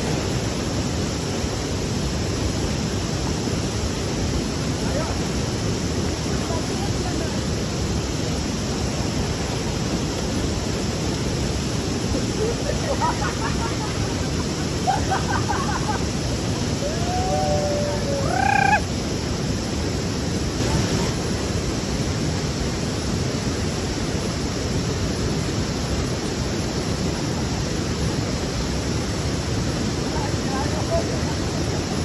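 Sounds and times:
river water rushing: 0.0 - 32.0
short pitched calls: 18.2 - 18.9.

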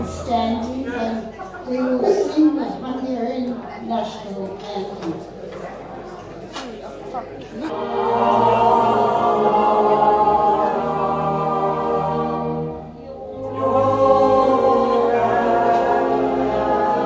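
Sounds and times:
folk choir singing held notes: 7.6 - 17.0.

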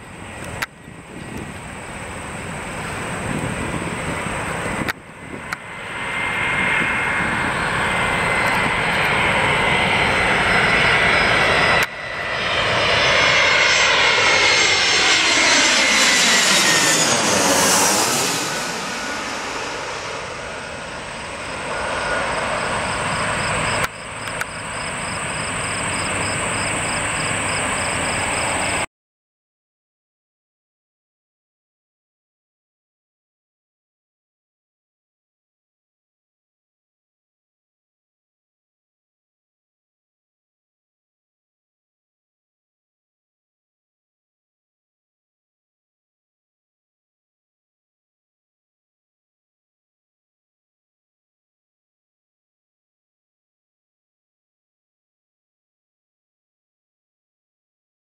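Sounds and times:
jet engines whining: 0.0 - 28.9.

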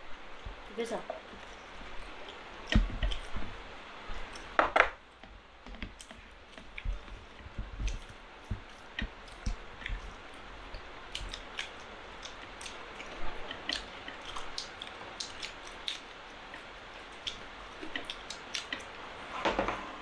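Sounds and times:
wet chewing smacks: 1.4 - 3.5, 5.9 - 19.0
fingers squishing through rice: 5.9 - 19.0.

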